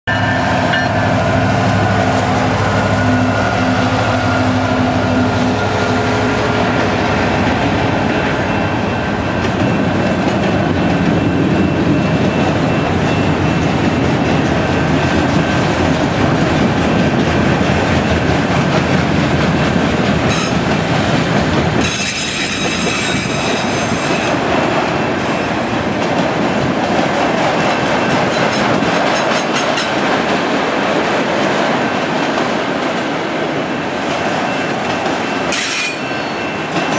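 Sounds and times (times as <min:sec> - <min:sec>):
diesel locomotive engine drone: 0:00.1 - 0:36.9
train wheels rumbling on rails: 0:00.1 - 0:36.9
high-pitched wheel squeal: 0:21.8 - 0:24.4.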